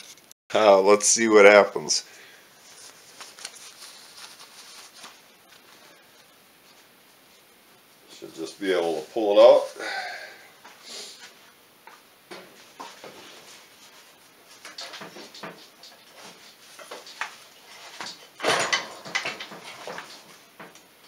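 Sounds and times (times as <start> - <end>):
metal clunks and scrapes: 17.9 - 20.7.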